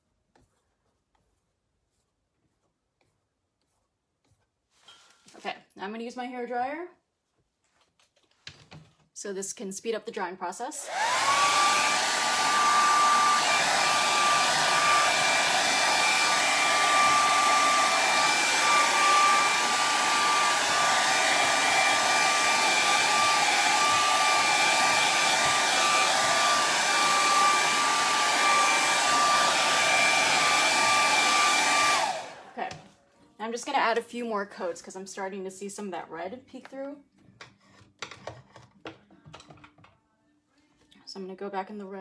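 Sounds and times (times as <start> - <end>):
hair dryer running: 10.8 - 32.8.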